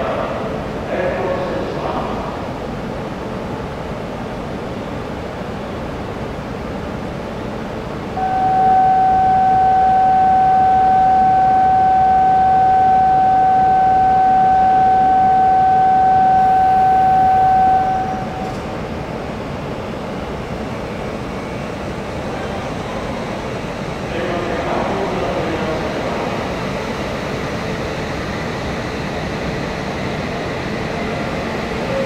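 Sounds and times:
steady electronic buzzer tone: 8.2 - 18.6.

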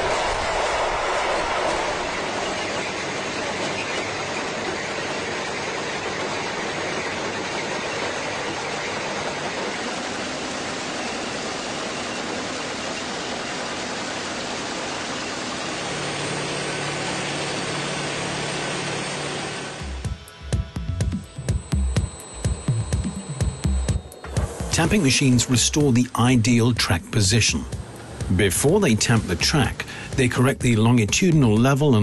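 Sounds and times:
heavy track machinery running: 0.0 - 32.0
low steady hum: 19.7 - 30.8.

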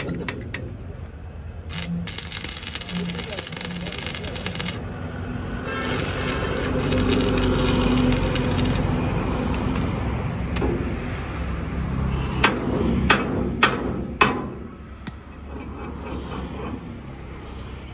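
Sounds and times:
low traffic hum: 0.0 - 17.9
arc welding crackling: 1.7 - 9.0.

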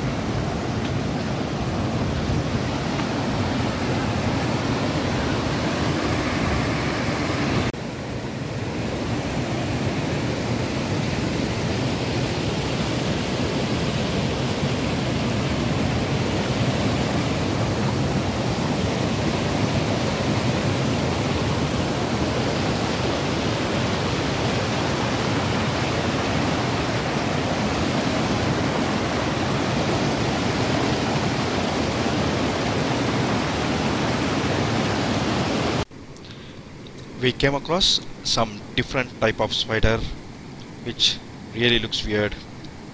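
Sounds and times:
river rushing over rocks: 9.3 - 35.8.

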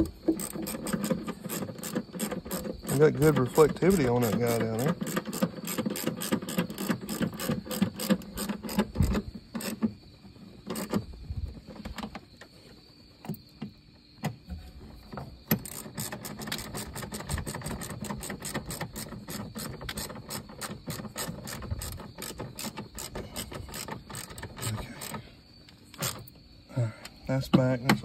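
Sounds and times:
ratchet wrench clicking: 15.5 - 25.2.

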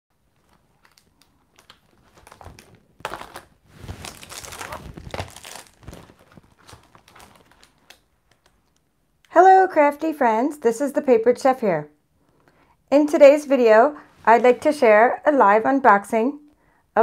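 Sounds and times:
packaging crinkling: 0.2 - 8.9.

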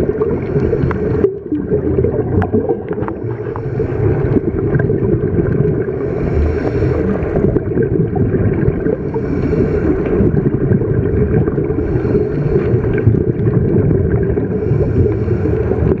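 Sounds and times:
diver breathing through regulator: 0.0 - 1.4, 2.9 - 4.6, 5.8 - 7.6, 8.9 - 10.6, 11.6 - 13.4, 14.3 - 16.0
low rumble of bubbles and water: 0.0 - 16.0.

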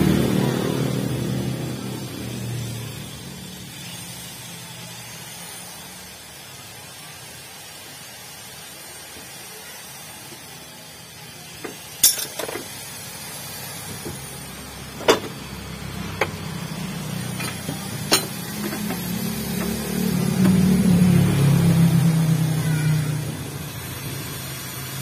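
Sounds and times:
metal tools clinking on engine parts: 11.6 - 12.8, 14.9 - 20.6
low engine hum: 13.8 - 25.0.

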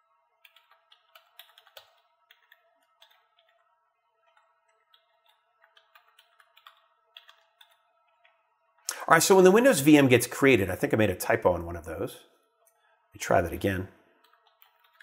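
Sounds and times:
typing on computer keyboard: 0.4 - 8.4, 14.2 - 15.0.

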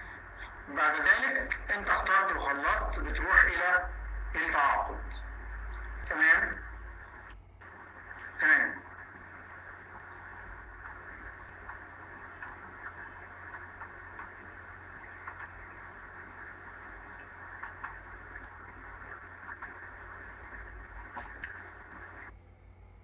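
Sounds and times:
open microphone hiss and hum: 0.0 - 23.0
faint clicks: 7.1 - 22.3.

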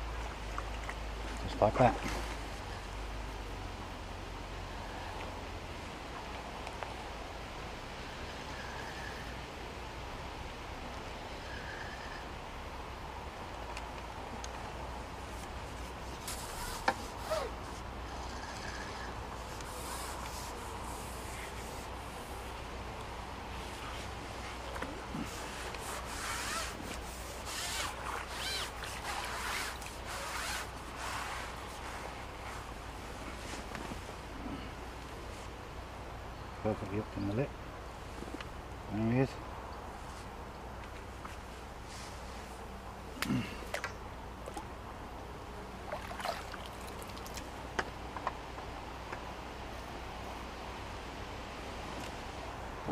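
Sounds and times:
outdoor background noise: 0.0 - 52.9
water splashing: 45.8 - 47.6.

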